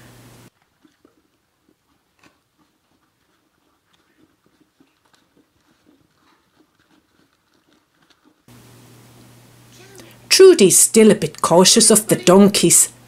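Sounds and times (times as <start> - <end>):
horse chewing feed: 0.5 - 8.8
puppy eating grain: 0.5 - 12.6.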